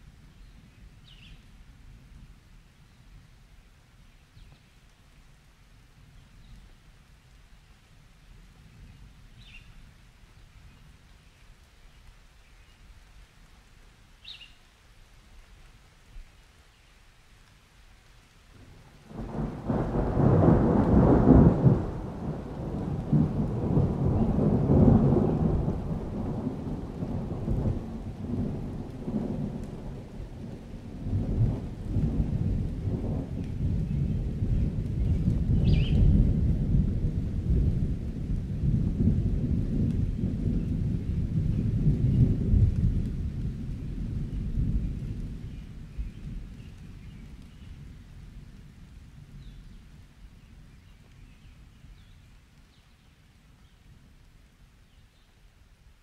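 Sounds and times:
steady rain: 0:00.0 - 0:56.0
thunder rumbling: 0:18.6 - 0:52.2.

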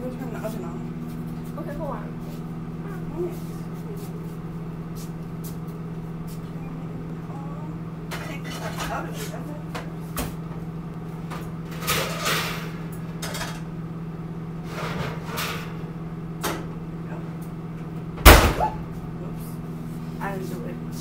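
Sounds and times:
knocks and clatters of cookware: 0:11.3 - 0:13.7
door banged shut: 0:18.2 - 0:18.8.

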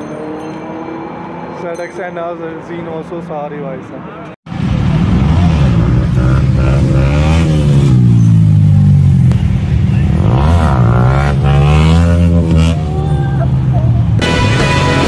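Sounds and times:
vehicle engines revving loudly: 0:04.5 - 0:15.0.

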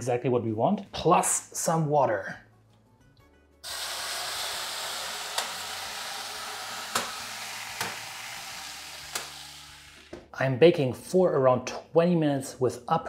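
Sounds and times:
water hissing on hot stones: 0:03.6 - 0:10.0
sharp pops: 0:06.9 - 0:08.1.

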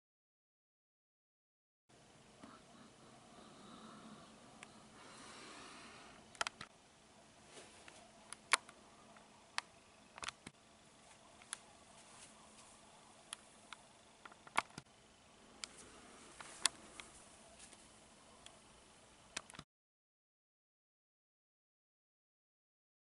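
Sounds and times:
faint room hiss: 0:01.9 - 0:19.6.

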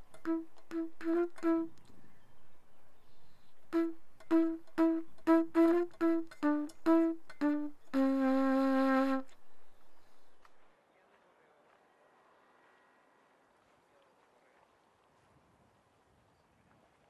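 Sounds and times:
flute-like wind instrument notes: 0:00.0 - 0:01.9, 0:03.5 - 0:10.5.

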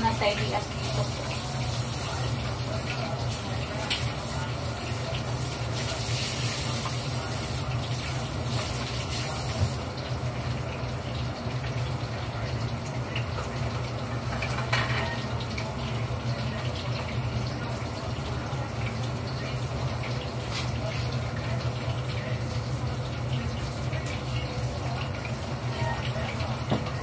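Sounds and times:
tap water running into sink: 0:00.0 - 0:27.0
dish clink: 0:14.4 - 0:15.2.

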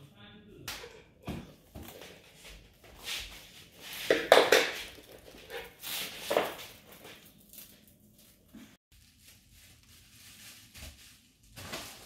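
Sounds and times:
plastic stretch wrap crackling: 0:06.1 - 0:12.0.

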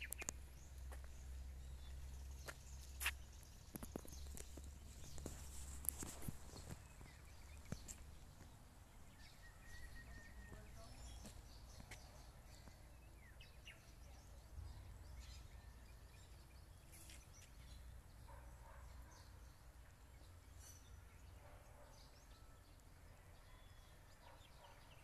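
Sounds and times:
faint bird chirps: 0:09.0 - 0:19.4.

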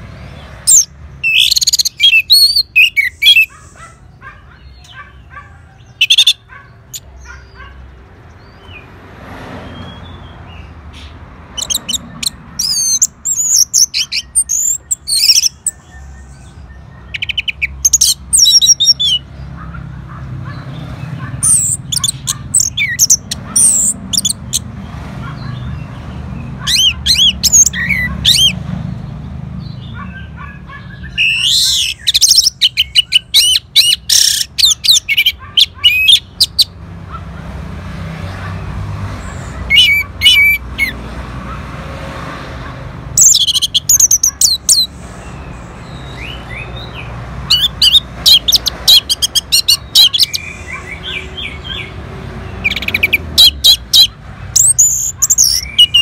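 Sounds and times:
bird singing trills and whistles: 0:00.7 - 0:03.9, 0:11.5 - 0:19.3, 0:21.4 - 0:24.6, 0:26.6 - 0:28.6, 0:29.7 - 0:36.7, 0:43.2 - 0:52.0, 0:52.6 - 0:56.0.

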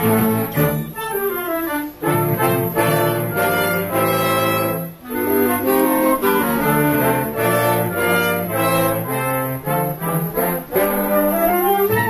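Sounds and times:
wind band playing: 0:00.0 - 0:12.0.

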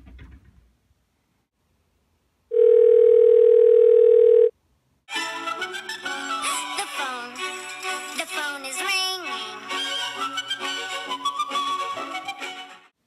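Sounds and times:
phone ringing tone: 0:02.5 - 0:04.5.

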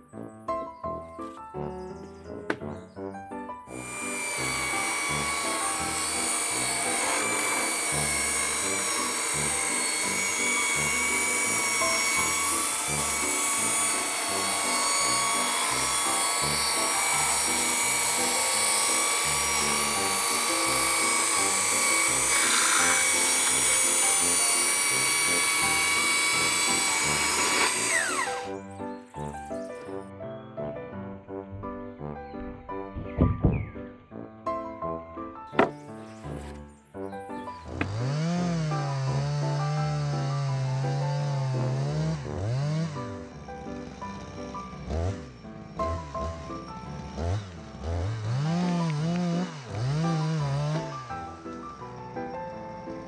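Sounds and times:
electric chainsaw whining: 0:03.6 - 0:30.0, 0:37.4 - 0:53.0.

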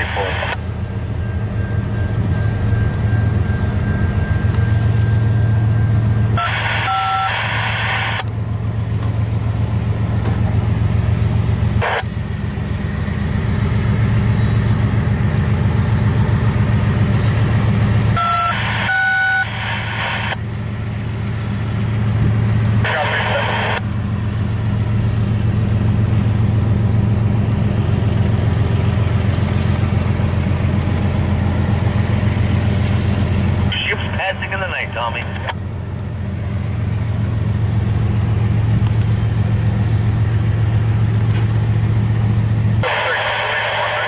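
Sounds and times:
diesel locomotive engines droning: 0:00.0 - 0:44.0
train horn blast: 0:06.3 - 0:07.3, 0:18.1 - 0:19.6.

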